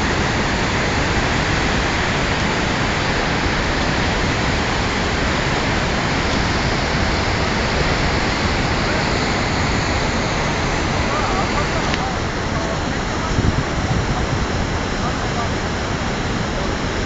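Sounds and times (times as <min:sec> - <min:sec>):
river rushing through rocky gorge: 0:00.0 - 0:17.0.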